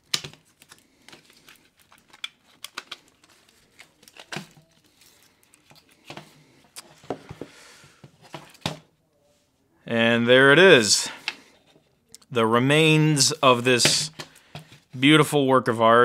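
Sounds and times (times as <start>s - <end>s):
adhesive foil tape crinkling: 0.0s - 6.0s.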